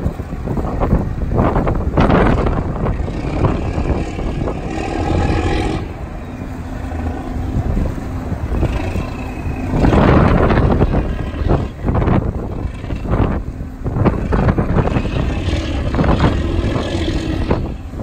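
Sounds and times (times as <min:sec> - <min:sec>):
boat engine running: 0:00.0 - 0:18.0
wind on microphone: 0:00.0 - 0:18.0.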